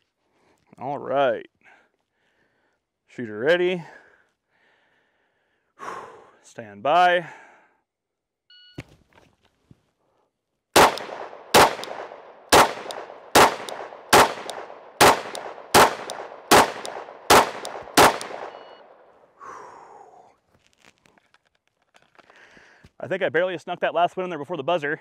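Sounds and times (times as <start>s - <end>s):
pistol shots: 10.8s - 18.8s.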